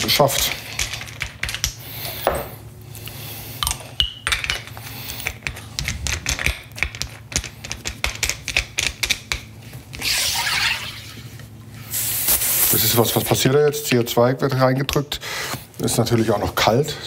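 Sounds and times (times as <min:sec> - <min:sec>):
sharp gas hiss: 0:11.8 - 0:13.1.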